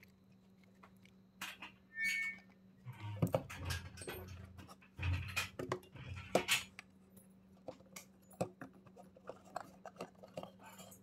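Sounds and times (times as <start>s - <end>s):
scraping and rustling: 7.7s - 11.0s.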